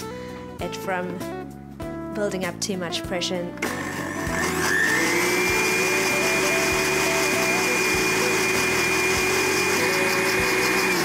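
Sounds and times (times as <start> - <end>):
blender motor whine: 3.6 - 11.0.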